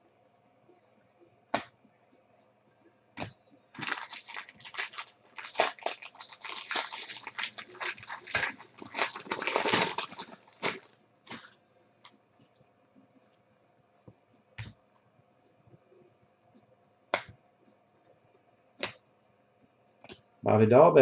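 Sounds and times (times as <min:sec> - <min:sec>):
foil wrapper crinkling and tearing: 0:03.8 - 0:11.5.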